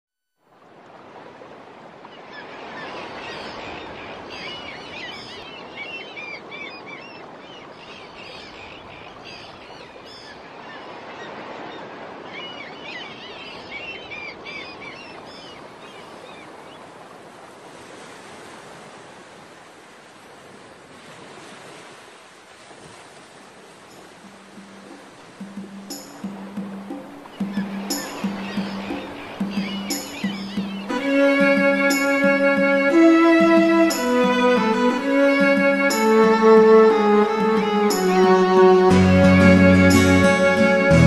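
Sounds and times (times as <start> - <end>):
birds chirping: 2.2 - 16.9, 24.2 - 41.0.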